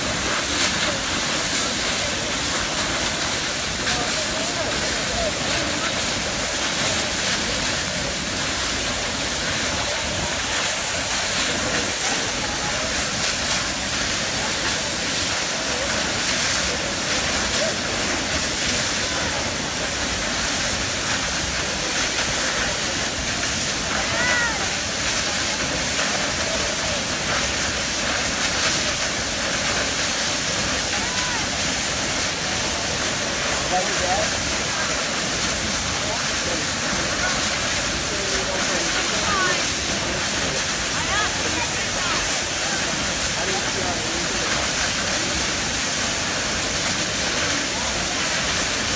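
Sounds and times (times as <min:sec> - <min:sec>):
waterfall crashing onto rocks: 0:00.0 - 0:48.9.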